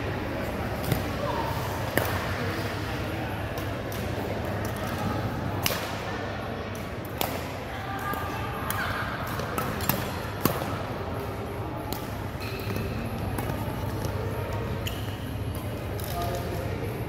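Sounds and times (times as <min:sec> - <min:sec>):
rackets striking shuttlecock: 0:05.6 - 0:06.1, 0:08.1 - 0:10.8.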